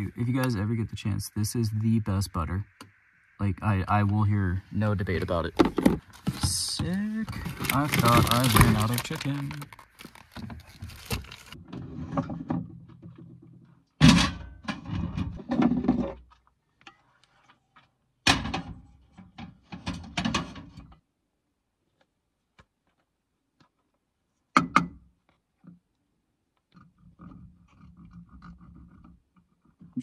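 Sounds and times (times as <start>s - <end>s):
cooking gear clattering: 5.6s - 11.6s.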